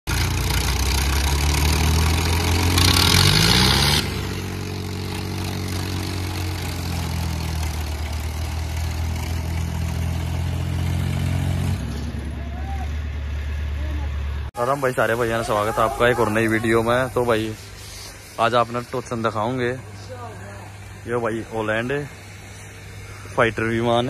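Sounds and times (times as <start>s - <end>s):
engine revving up: 0.1s - 19.3s
diesel tractor engines running: 0.1s - 24.0s.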